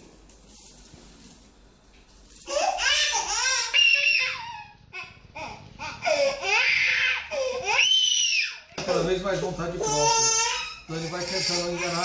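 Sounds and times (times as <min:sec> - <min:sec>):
infant crying: 0:02.4 - 0:08.7, 0:09.8 - 0:12.0.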